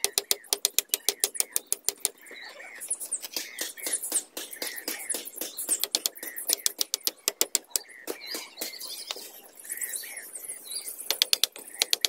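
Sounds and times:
bamboo poles knocking: 0.0 - 2.2, 3.3 - 8.8, 11.1 - 12.0
hammer tapping nail into bamboo: 0.0 - 2.2, 3.6 - 7.8, 11.1 - 12.0.

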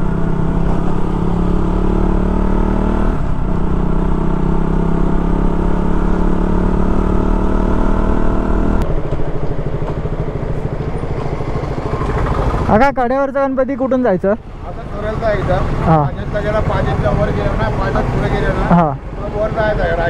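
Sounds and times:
motorcycle engine running: 0.0 - 13.2.

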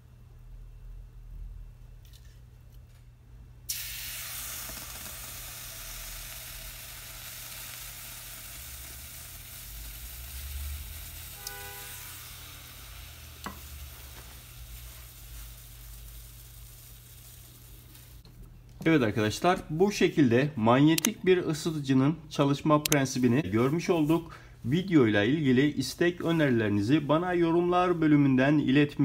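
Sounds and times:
water sizzling on hot metal: 3.7 - 18.3.

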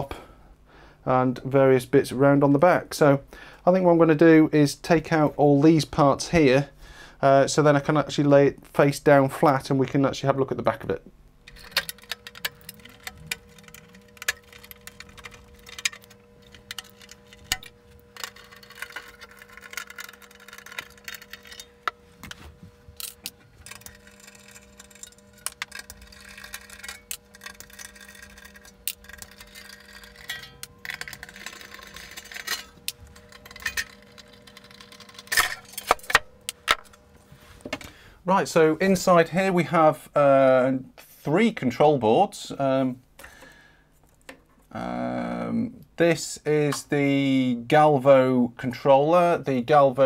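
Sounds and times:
faint steady hum: 0.0 - 50.0
whirring: 11.4 - 37.1
tools and screws clinking: 11.5 - 37.0.

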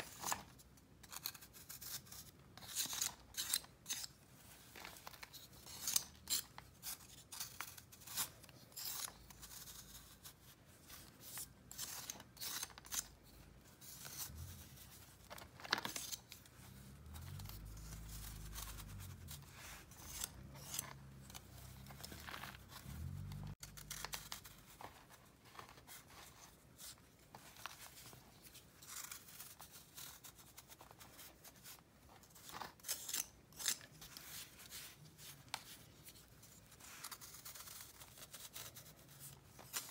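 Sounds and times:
blade scraping powder block: 1.0 - 4.2, 5.4 - 10.0, 17.9 - 21.4.

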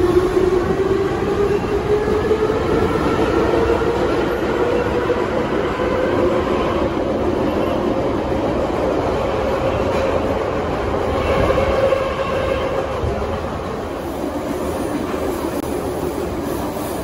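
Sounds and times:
metro wheels rumbling: 0.0 - 17.0.

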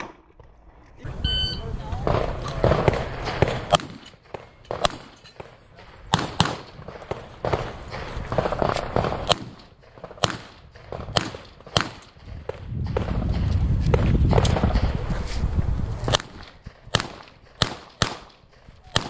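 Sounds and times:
handgun shots: 2.1 - 5.2, 6.1 - 7.7, 10.2 - 12.1, 16.1 - 19.0.

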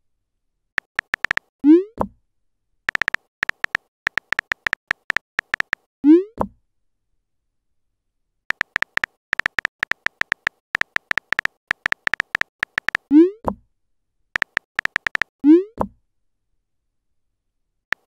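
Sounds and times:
keyboard tap clicks: 0.8 - 1.5, 2.9 - 5.8, 8.5 - 13.1, 14.4 - 15.3.

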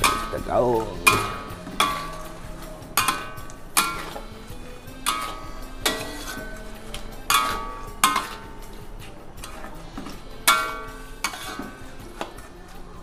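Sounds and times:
metal spatula knocking on wok: 0.0 - 2.4, 3.0 - 4.2
spatula scraping wok: 0.0 - 13.0.

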